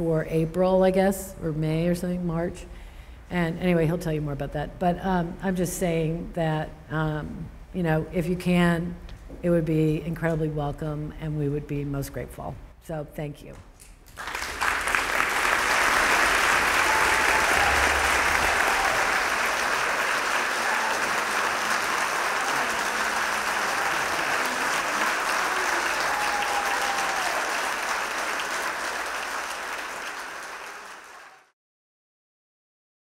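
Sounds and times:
audience applauding: 14.1s - 31.6s.

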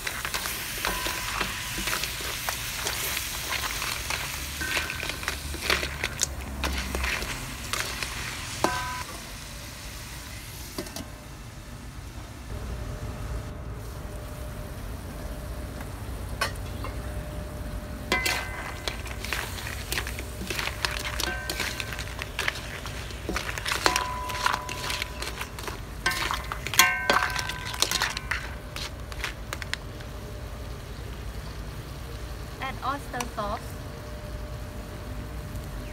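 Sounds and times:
spatula scraping a wok: 0.0s - 9.1s, 18.1s - 29.6s
wok ringing: 0.0s - 9.4s, 16.3s - 29.7s.

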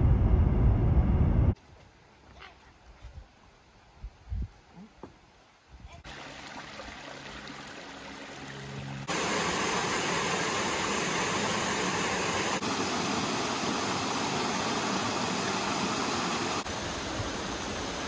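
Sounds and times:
stream cascading over rocks: 6.1s - 18.0s.

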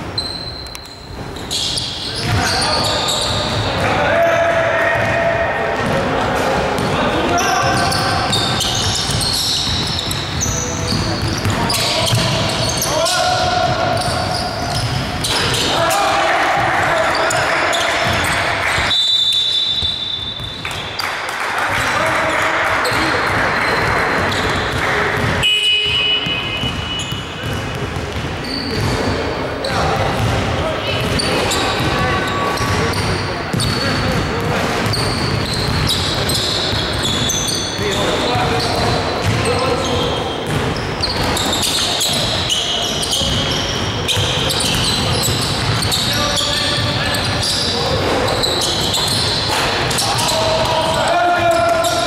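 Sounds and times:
sneakers squeaking on hardwood: 0.0s - 21.1s, 22.8s - 52.0s
voices echoing in gym: 0.0s - 52.0s
basketball bouncing on wood floor: 7.6s - 15.3s, 22.9s - 29.1s, 29.9s - 39.6s, 40.4s - 42.4s.

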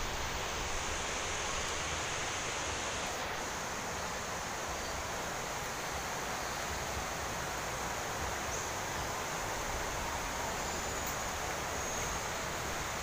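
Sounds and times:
rushing hiss of outdoor ambience: 0.0s - 13.0s.

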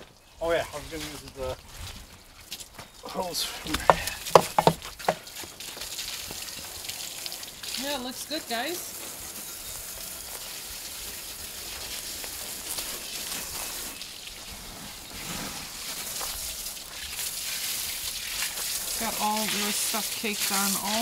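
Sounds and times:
hose spraying water: 2.4s - 21.0s
water spattering off metal: 3.2s - 21.0s.

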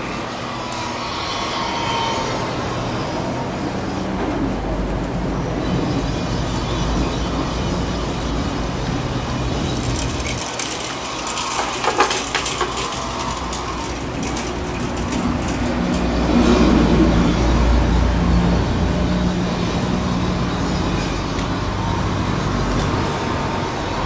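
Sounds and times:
bicycle clicking and rattling: 6.0s - 24.0s.

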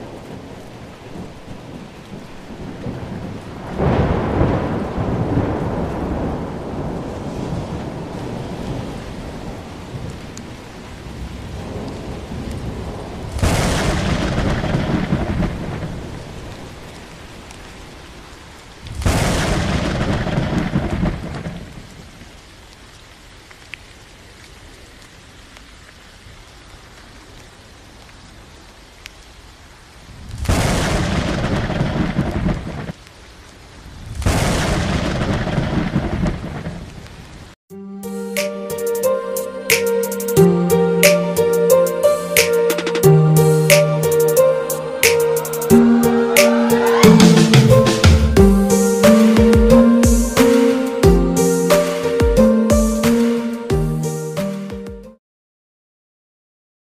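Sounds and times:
thunder claps rumbling: 0.0s - 17.0s, 18.9s - 22.0s, 30.2s - 33.0s, 33.8s - 37.1s, 42.4s - 54.0s
steady rain: 0.0s - 37.6s, 38.3s - 55.0s.

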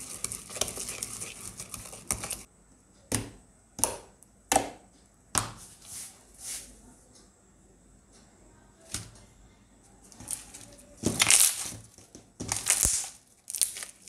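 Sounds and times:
slime squishing: 0.0s - 2.5s, 10.2s - 14.0s.

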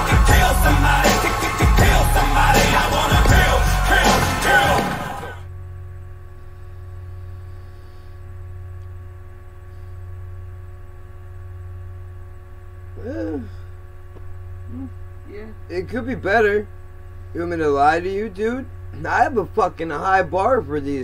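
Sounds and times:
hip-hop music: 0.0s - 5.4s
electrical mains hum: 0.0s - 21.0s.

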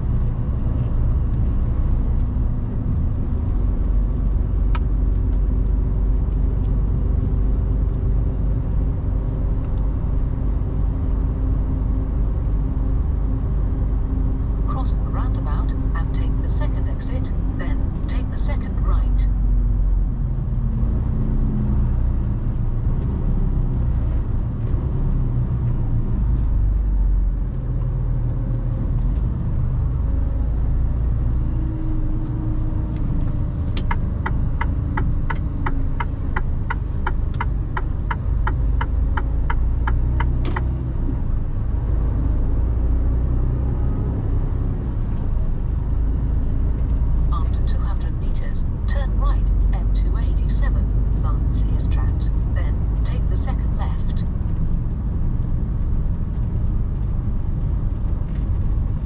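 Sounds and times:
truck engine rumble: 0.0s - 59.0s
turn signal ticking: 32.9s - 40.8s.

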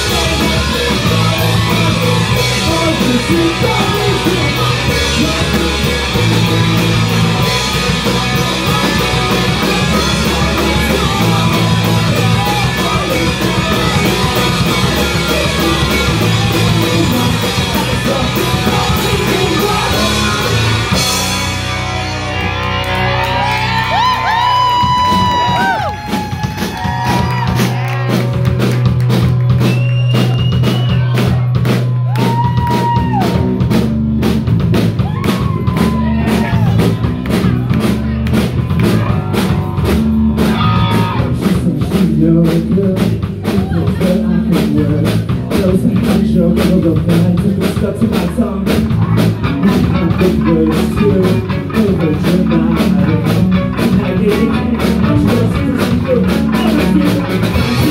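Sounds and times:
person singing: 0.0s - 21.3s, 40.4s - 57.9s
bass guitar: 0.0s - 57.9s
drum kit: 0.0s - 57.9s
electric guitar: 0.0s - 57.9s.

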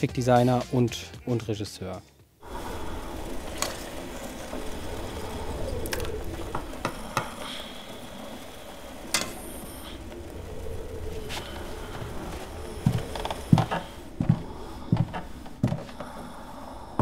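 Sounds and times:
low hum: 2.4s - 17.0s.

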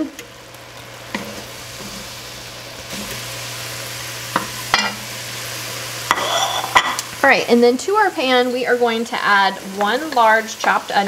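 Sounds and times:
meat sizzling in oil: 0.0s - 11.0s.

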